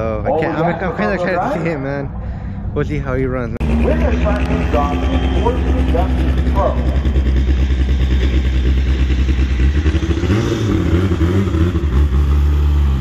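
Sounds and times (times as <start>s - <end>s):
race car engines rumbling: 0.0s - 13.0s
engine revving: 3.6s - 13.0s.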